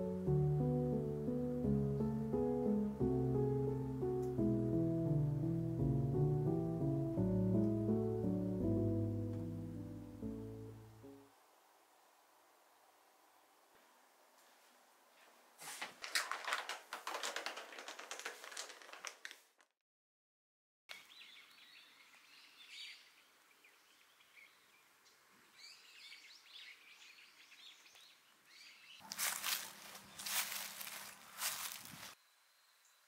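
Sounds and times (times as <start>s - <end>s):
dense crackling and rustling: 15.6s - 19.7s, 29.1s - 32.2s
small birds chirping: 20.9s - 33.0s.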